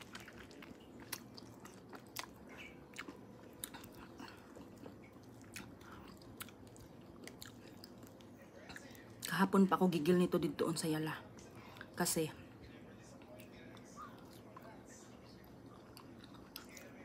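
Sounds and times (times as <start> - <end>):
chewing and biting fruit: 0.0 - 8.9.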